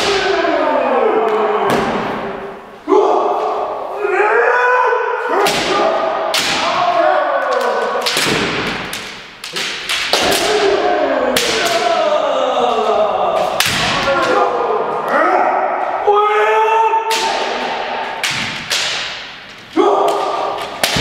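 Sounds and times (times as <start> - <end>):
people shouting: 0.0 - 21.0
bamboo swords striking armour: 5.4 - 6.9, 20.0 - 21.0.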